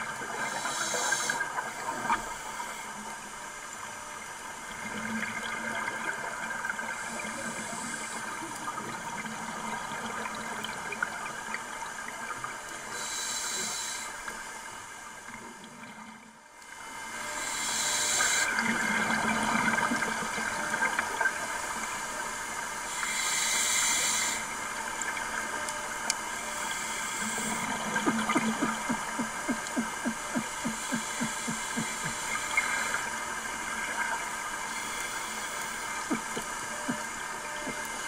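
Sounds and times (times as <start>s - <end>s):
diver breathing through regulator: 0.4s - 1.5s, 12.9s - 14.2s, 17.4s - 18.6s, 22.9s - 24.5s, 26.6s - 33.2s, 34.7s - 37.9s
hissing exhaled bubbles: 26.8s - 38.0s
diver making low grunts: 27.9s - 32.2s.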